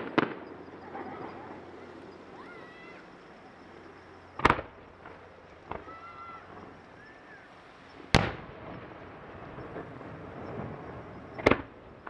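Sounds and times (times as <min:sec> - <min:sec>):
firework bangs with rumbling echo: 0:00.0 - 0:01.6, 0:04.3 - 0:06.8, 0:08.1 - 0:12.0.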